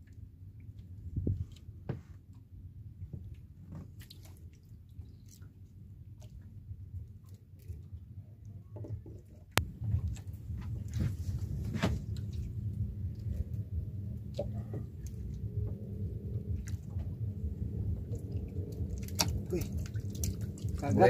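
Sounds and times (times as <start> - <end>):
low steady rumble: 0.0 - 21.0
wet squishing: 16.2 - 21.0.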